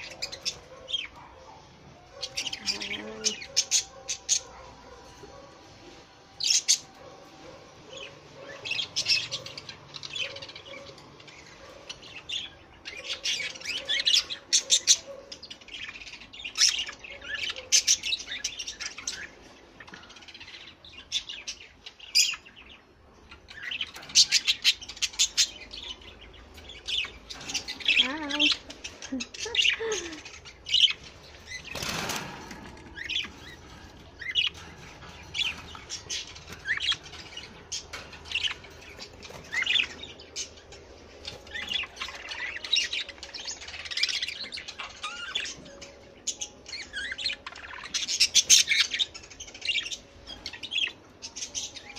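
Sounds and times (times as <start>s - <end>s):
budgerigars chirping: 0.0s - 5.8s, 6.4s - 51.9s
wings flapping: 31.6s - 33.0s.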